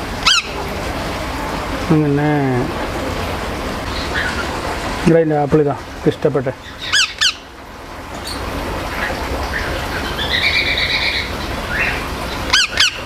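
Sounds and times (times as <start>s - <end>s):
parakeet shrill calls: 0.2s - 0.6s, 3.9s - 4.5s, 6.6s - 7.5s, 9.0s - 13.0s.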